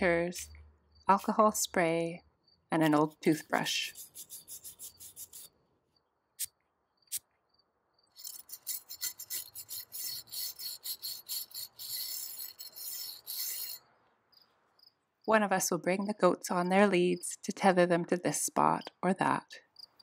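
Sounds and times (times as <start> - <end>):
toothbrush scrubbing metal blades: 2.8 - 5.5, 8.2 - 13.8.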